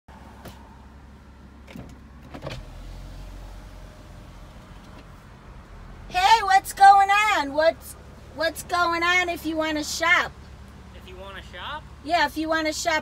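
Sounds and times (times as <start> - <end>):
car engine hum: 0.1 - 13.0.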